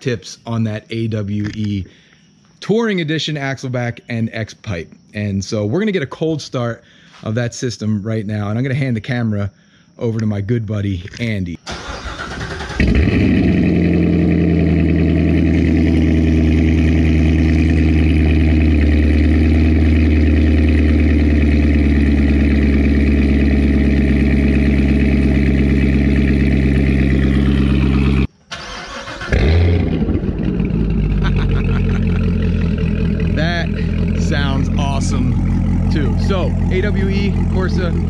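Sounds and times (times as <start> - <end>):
car engine starting and idling: 11.6 - 38.0.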